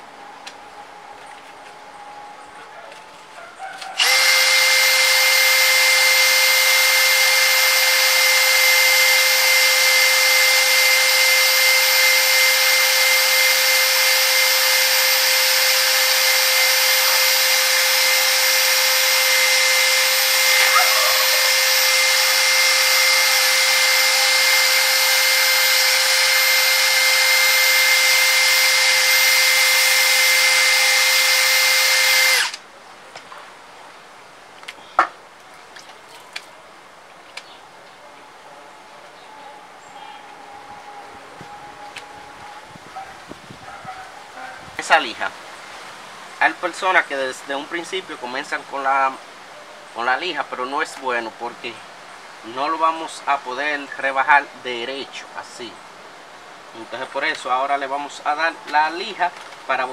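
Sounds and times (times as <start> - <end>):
cordless drill motor whine: 4.0 - 32.6.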